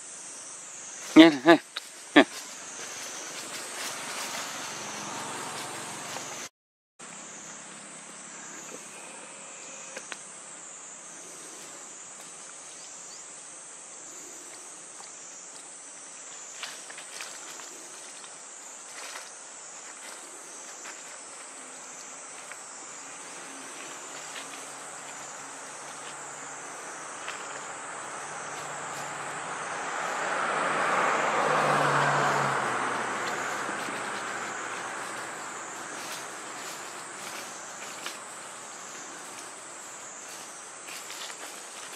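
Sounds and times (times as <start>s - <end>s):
insects droning: 0.0s - 41.9s
motor vehicle passing: 2.2s - 6.5s, 23.4s - 39.4s.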